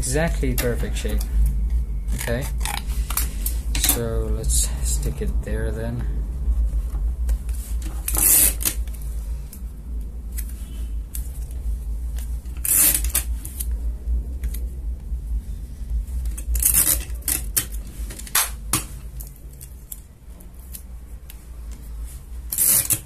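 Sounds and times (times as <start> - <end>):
steady low hum: 0.0 - 23.0
tape pulled from dispenser: 22.5 - 23.0.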